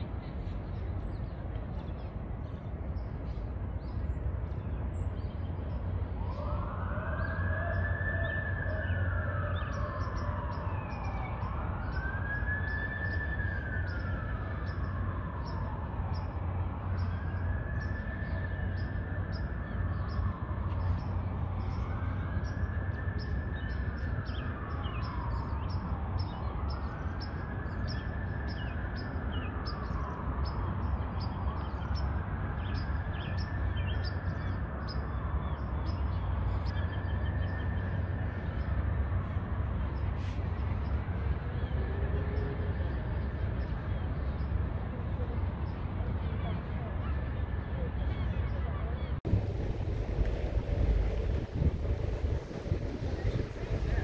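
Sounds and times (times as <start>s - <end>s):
low city rumble: 0.0s - 54.0s
emergency siren wailing: 6.0s - 43.8s, 49.3s - 54.0s.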